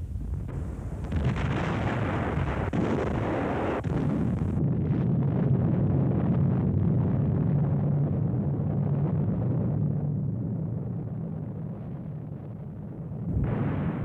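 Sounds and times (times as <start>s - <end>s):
artillery fire and explosions: 0.2s - 14.0s
dull low rumble: 3.9s - 14.0s.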